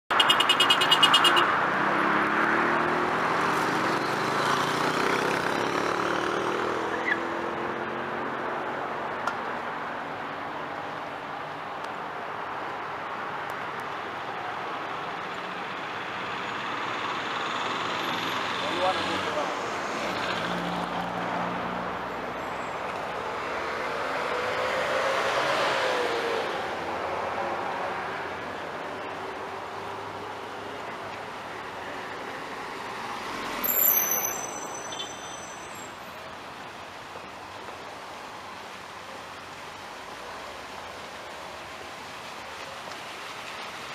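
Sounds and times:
road traffic: 0.0s - 43.9s
high squeal: 33.6s - 36.0s.

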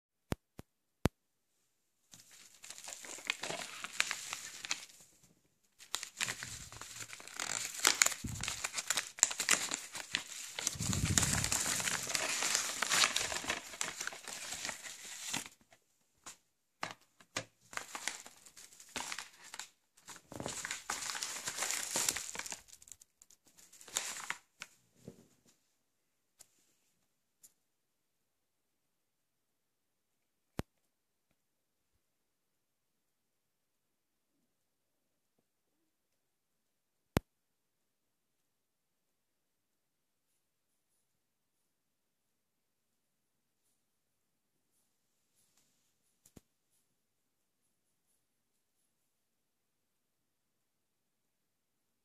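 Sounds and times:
padded paper mailer crinkling: 2.2s - 5.0s, 5.8s - 15.6s, 16.9s - 23.0s, 23.6s - 24.5s.

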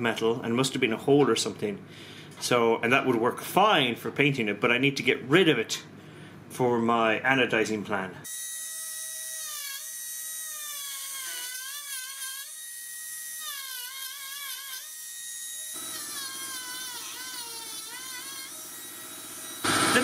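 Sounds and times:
rotary tool grinding metal: 8.6s - 20.0s.

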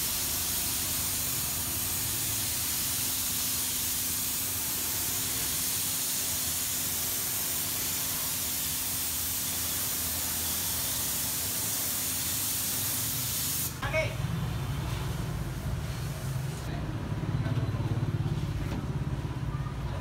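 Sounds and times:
spraying hiss: 0.0s - 13.8s.

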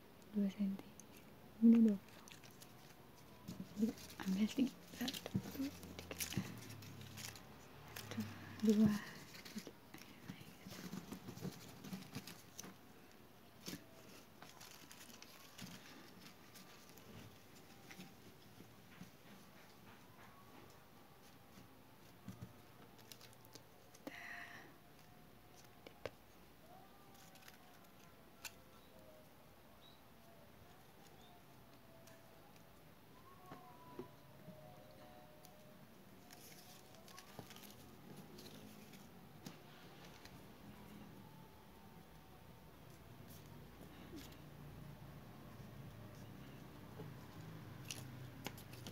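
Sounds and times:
paper strips rustling: 1.1s - 19.6s, 21.0s - 24.1s, 25.0s - 28.9s, 35.5s - 40.6s, 47.1s - 48.9s.

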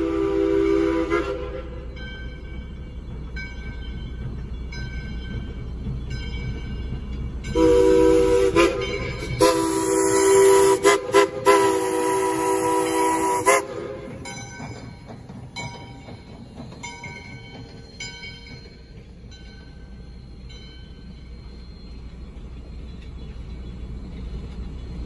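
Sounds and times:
steam whistle blowing a chord: 0.0s - 1.9s, 7.6s - 14.2s
train rumble: 0.0s - 25.0s
crossing bell dinging: 1.7s - 23.5s.

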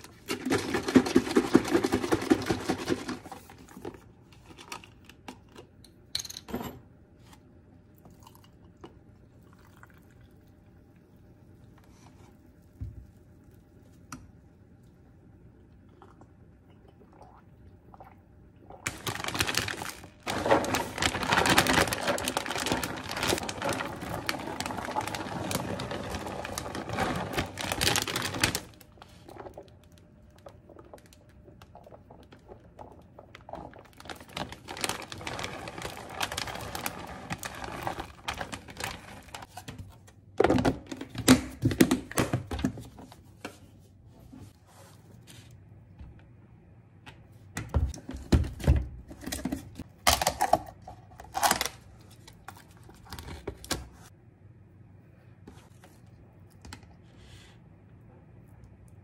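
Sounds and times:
shredded cheese rustling: 18.9s - 29.2s, 34.0s - 39.5s
plastic bag crinkling: 18.9s - 31.2s, 33.3s - 39.6s.

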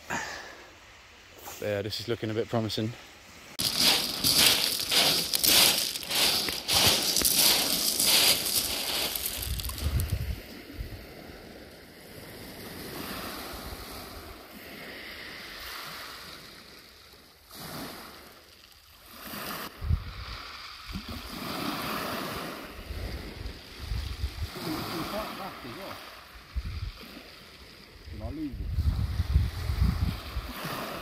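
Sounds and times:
surf on shingle beach: 0.0s - 31.0s
wind buffeting microphone: 8.9s - 11.1s, 28.5s - 30.5s.

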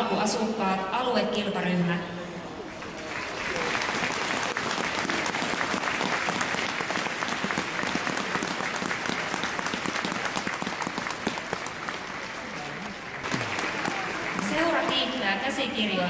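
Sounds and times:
audience applauding: 2.7s - 15.3s.

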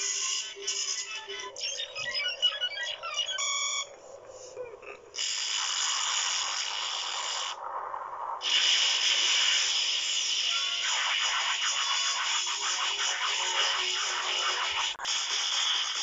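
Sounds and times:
hissing rush of noise: 4.4s - 16.0s.

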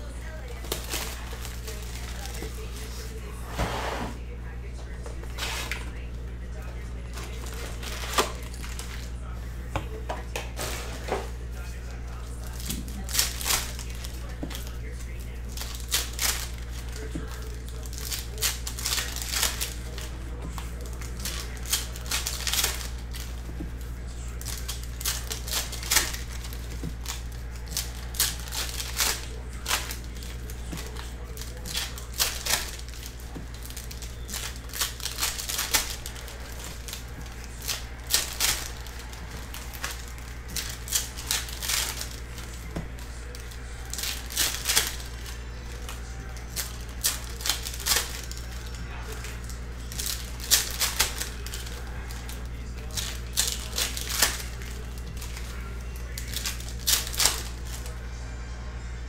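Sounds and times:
foil wrappers crinkling and tearing: 0.0s - 3.5s, 4.2s - 58.0s
steady low hum: 0.0s - 59.0s.

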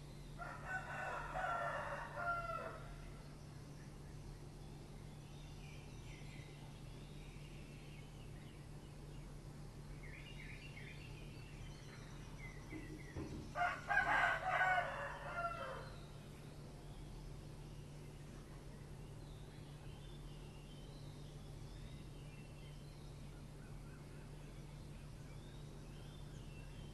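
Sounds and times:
rooster crowing: 0.4s - 3.1s, 13.6s - 16.0s.

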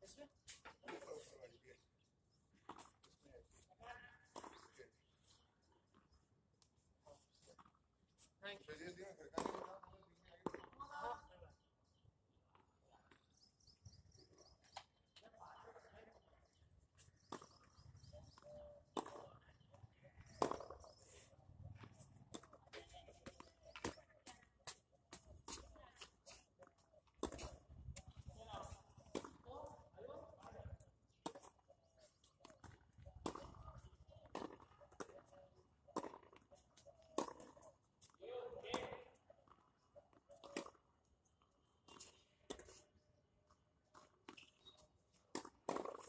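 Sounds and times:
tennis ball struck by racket: 45.3s - 46.0s.

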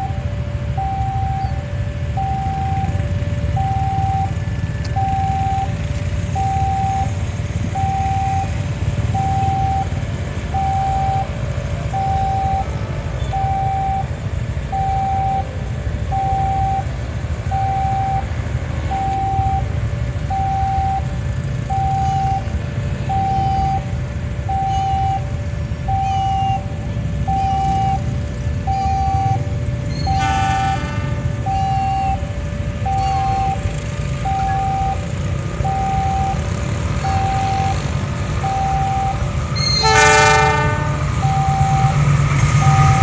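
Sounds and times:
level crossing two-tone alarm: 0.0s - 14.1s, 14.7s - 15.5s, 16.1s - 23.9s, 24.5s - 43.0s
road traffic rumble: 0.0s - 43.0s.

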